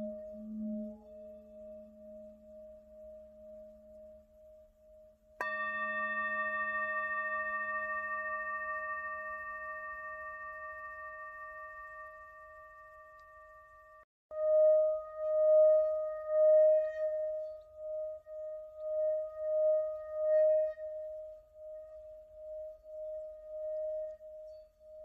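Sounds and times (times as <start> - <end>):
singing bowl humming tone: 0.0 - 25.0
singing bowl struck and ringing: 5.4 - 15.8.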